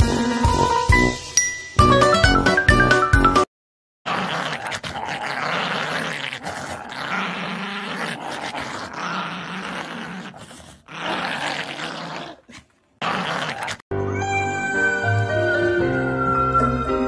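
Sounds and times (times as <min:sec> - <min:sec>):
puppy growling: 0:04.1 - 0:13.8.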